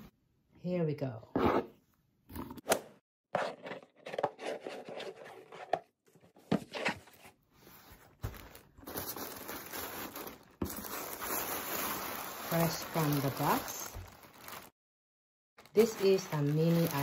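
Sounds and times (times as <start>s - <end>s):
ribbon and box rustling: 6.6s - 14.7s, 15.7s - 17.0s
tissue paper crinkling: 7.1s - 14.8s, 15.6s - 17.0s.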